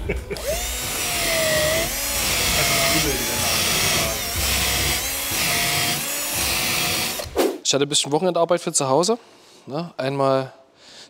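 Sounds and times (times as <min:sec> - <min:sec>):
power tool motor whining: 0:00.4 - 0:07.4.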